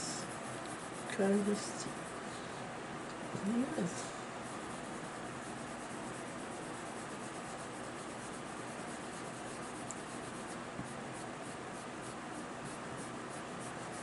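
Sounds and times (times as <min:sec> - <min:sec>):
colored pencil scratching on paper: 0:00.0 - 0:02.4, 0:03.2 - 0:14.0.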